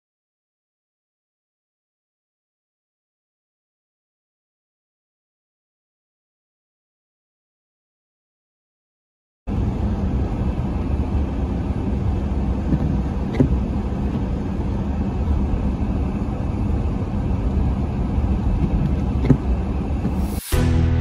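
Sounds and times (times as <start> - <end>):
car road and wind noise: 9.5 - 20.4.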